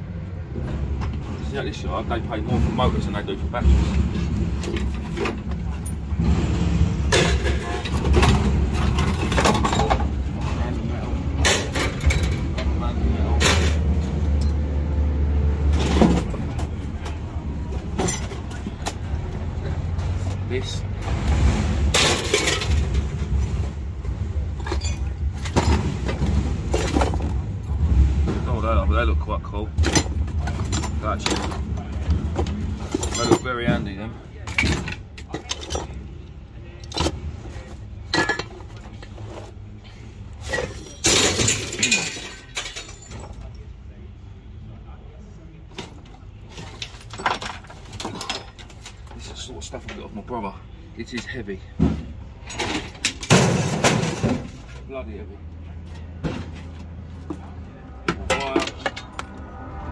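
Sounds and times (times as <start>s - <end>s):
low engine rumble: 0.0s - 59.9s
scrap metal clanking: 0.7s - 14.6s, 15.7s - 28.6s, 29.7s - 43.5s, 45.7s - 50.1s, 51.2s - 54.9s, 56.0s - 59.9s
scrap metal clinking in a box: 29.8s - 33.8s, 36.8s - 39.6s, 40.4s - 43.6s, 45.8s - 49.5s
metal clattering into a steel drum: 52.4s - 54.7s.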